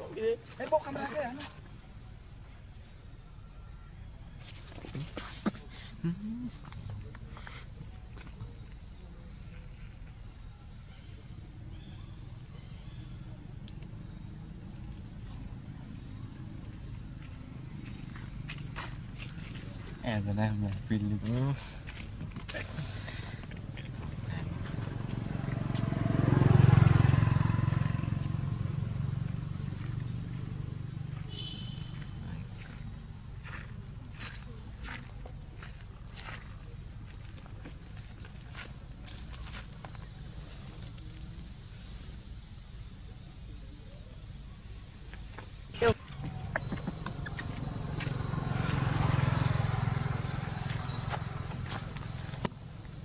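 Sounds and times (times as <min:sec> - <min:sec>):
passing vehicle engine hum: 0:10.8 - 0:53.0.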